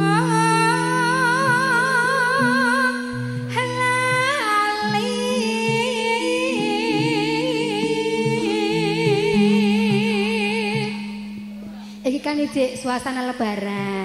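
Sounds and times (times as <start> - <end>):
woman singing with vibrato: 0.0 - 14.0
sustained low accompaniment: 5.8 - 14.0.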